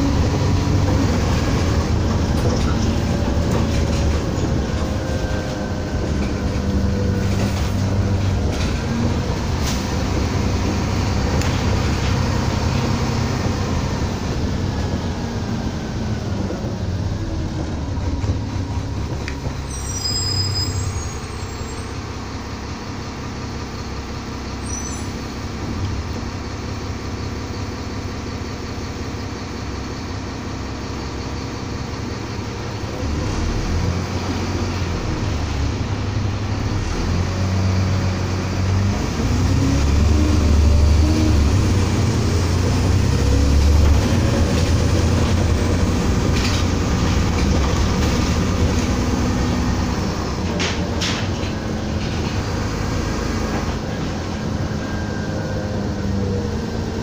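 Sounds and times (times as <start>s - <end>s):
bus engine and road rumble: 0.0s - 57.0s
high squeaks: 19.6s - 22.0s, 24.6s - 25.3s.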